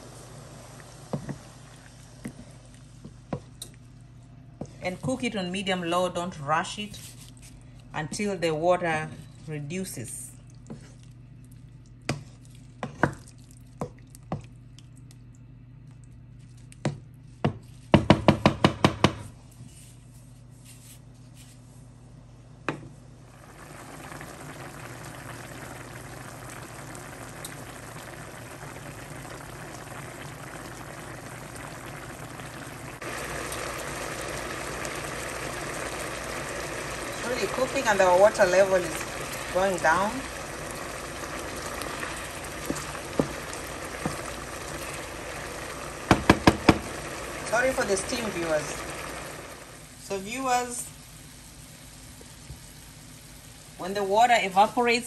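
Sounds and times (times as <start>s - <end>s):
sauce simmering and bubbling: 0.0s - 4.8s, 10.3s - 17.3s, 23.3s - 50.0s
wooden spoon knocking pan: 46.1s - 46.9s.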